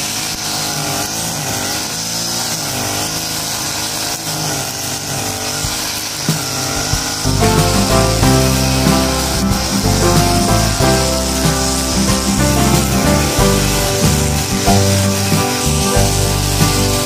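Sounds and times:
brush cutter engine running: 0:00.0 - 0:17.0
music: 0:06.8 - 0:17.0.

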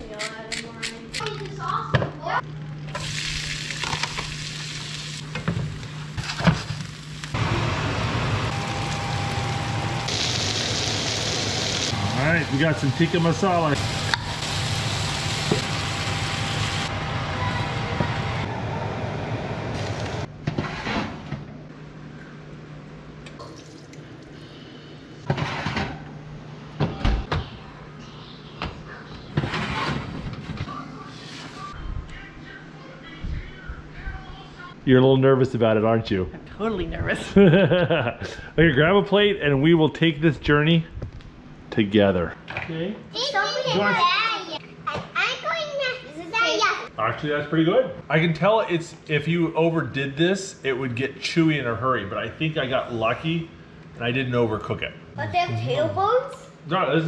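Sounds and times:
onions sizzling in pan: 0:02.9 - 0:12.0, 0:13.8 - 0:16.9
baking tray sliding on oven rack: 0:20.5 - 0:21.4, 0:25.3 - 0:26.0, 0:29.4 - 0:30.5.

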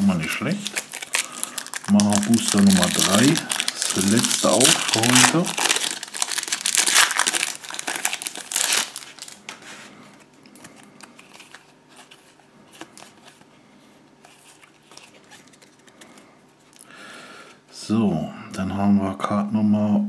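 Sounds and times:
foil wrapper crinkling: 0:00.0 - 0:09.6
cards rustling and clicking: 0:00.7 - 0:13.5, 0:14.2 - 0:16.3.

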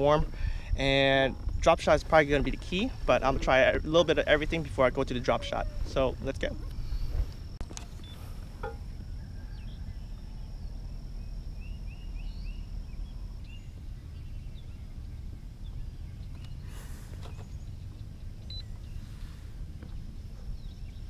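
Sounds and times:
steady low rumble: 0:00.0 - 0:21.0
small bird chirping: 0:07.8 - 0:21.0.

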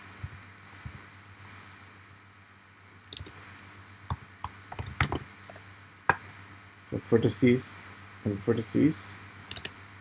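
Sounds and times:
faint steady hum: 0:00.0 - 0:10.0
keyboard keys tapping: 0:03.1 - 0:03.4, 0:04.1 - 0:06.2.

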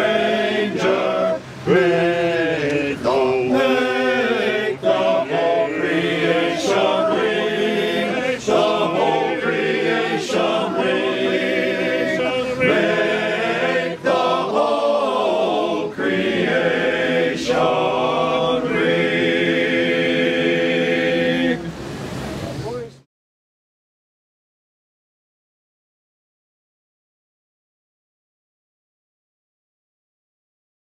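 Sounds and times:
group singing a carol in harmony: 0:00.0 - 0:22.4.

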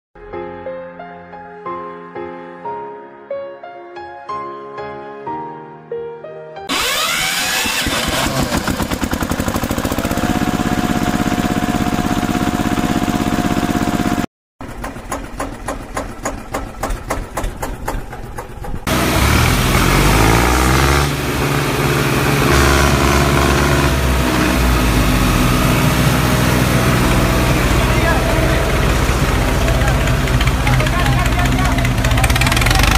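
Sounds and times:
diesel tractor engine running: 0:06.7 - 0:32.9.

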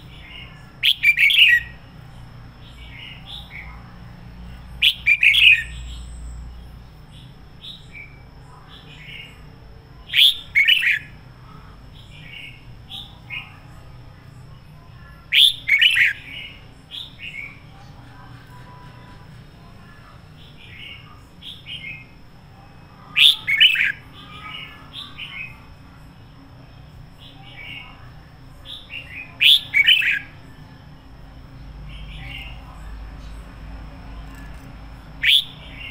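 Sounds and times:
bulbul singing: 0:00.0 - 0:03.8, 0:04.5 - 0:13.8, 0:15.0 - 0:19.2, 0:22.8 - 0:25.8, 0:26.9 - 0:35.9.

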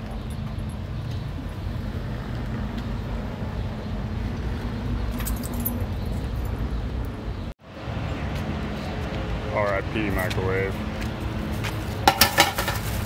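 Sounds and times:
jingling rattle of loose bits: 0:05.1 - 0:06.5.

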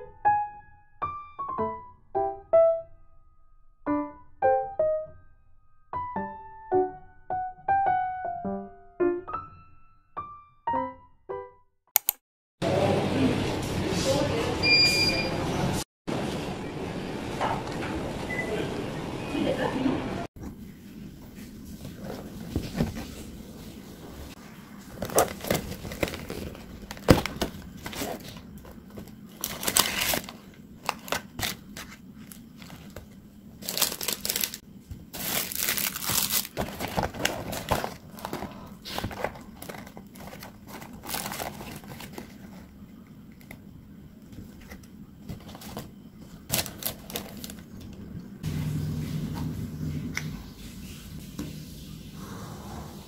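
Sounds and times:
cardboard and paper crinkling: 0:21.8 - 0:23.4, 0:24.8 - 0:43.6, 0:44.4 - 0:48.0
shower running: 0:48.4 - 0:53.0.

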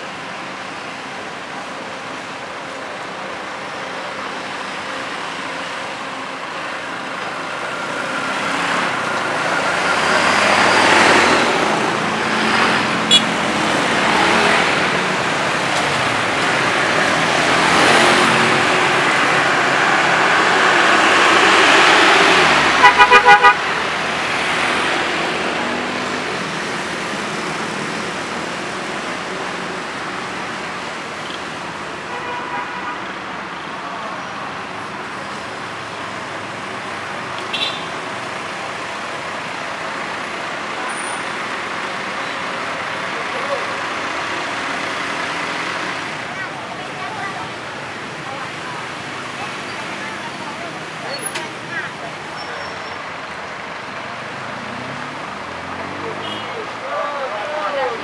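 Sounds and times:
traffic passing slowly: 0:00.0 - 0:58.0
horn tooting: 0:13.0 - 0:13.4, 0:22.8 - 0:23.9
short beep: 0:13.1 - 0:13.3.

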